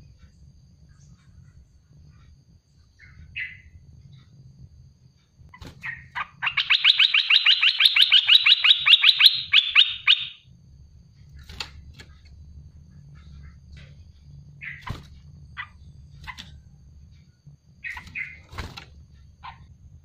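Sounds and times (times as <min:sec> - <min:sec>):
bird chattering song: 0:00.9 - 0:04.3, 0:05.5 - 0:10.4, 0:14.5 - 0:16.7, 0:17.8 - 0:18.5, 0:19.3 - 0:19.8.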